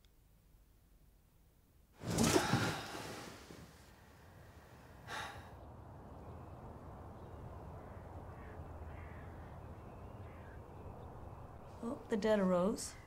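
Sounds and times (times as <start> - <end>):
low steady rumble: 3.7 - 12.7
crow cawing: 7.2 - 11.0.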